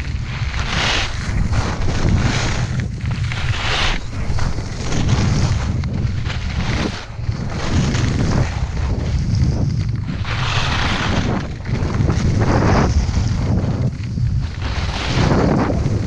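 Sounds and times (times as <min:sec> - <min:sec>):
skis scraping across snow: 0:00.0 - 0:16.0
wind buffeting microphone: 0:00.0 - 0:16.0.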